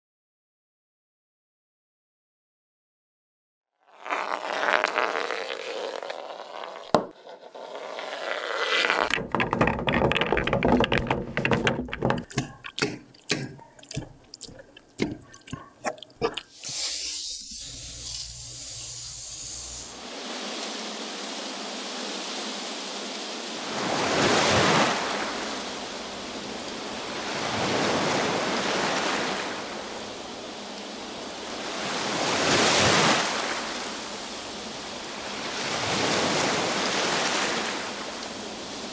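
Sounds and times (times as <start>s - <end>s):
sea waves hissing: 3.9s - 9.1s, 12.3s - 38.9s
sharp taps and clicks: 9.1s - 16.4s.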